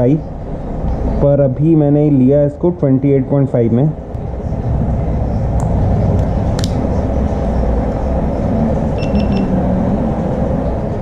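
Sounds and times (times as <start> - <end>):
low room rumble: 0.0 - 11.0
short electronic beeps: 9.0 - 9.6.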